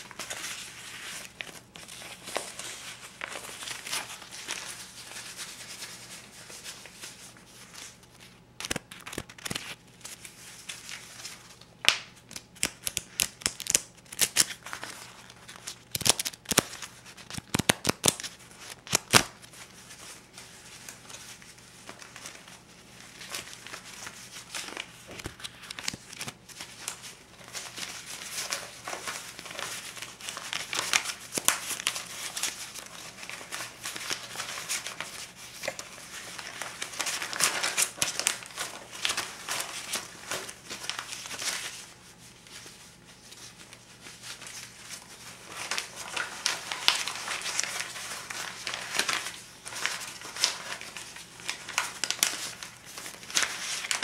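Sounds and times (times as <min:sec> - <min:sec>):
banknotes crinkling and rustling: 0:00.0 - 0:54.0
banknotes snapping and flicking: 0:08.6 - 0:09.8, 0:11.8 - 0:14.6, 0:15.9 - 0:19.3.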